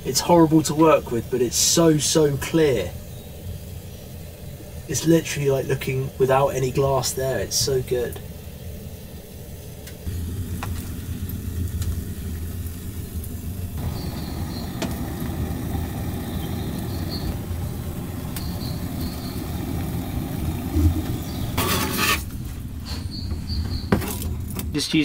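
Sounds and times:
steady low rumble: 10.1 - 21.6.

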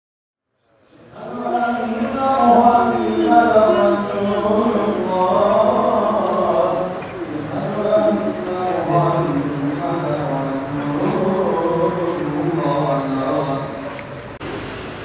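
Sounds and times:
chanted singing: 1.0 - 14.0.

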